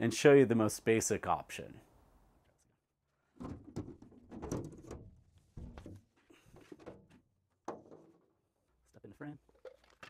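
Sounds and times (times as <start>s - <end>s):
panel clunking and scraping: 3.4s - 8.2s.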